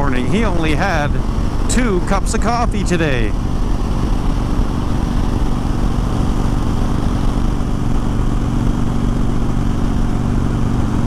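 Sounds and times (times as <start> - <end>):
motorcycle engines cruising: 0.0 - 11.0
road noise: 0.0 - 11.0
wind noise: 3.1 - 11.0.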